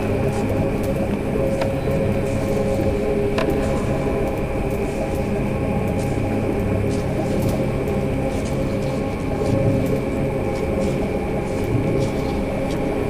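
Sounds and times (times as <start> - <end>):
ambient glitch electronic music: 0.0 - 13.0.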